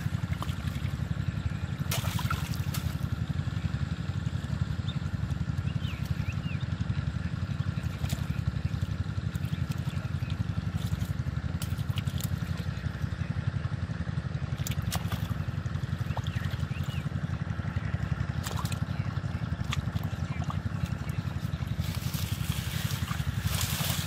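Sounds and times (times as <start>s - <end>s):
low engine drone: 0.0s - 24.0s
water splashes and clicks: 0.2s - 1.0s, 1.9s - 3.0s, 7.8s - 12.7s, 14.6s - 15.4s, 18.3s - 18.9s, 19.6s - 21.2s.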